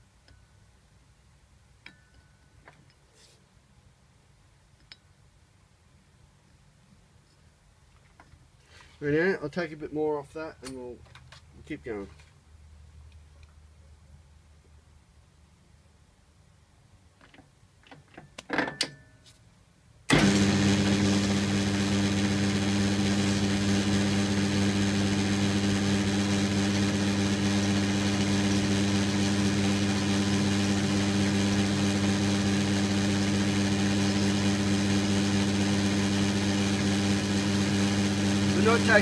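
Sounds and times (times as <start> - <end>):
metal lathe motor hum: 20.1 - 39.0.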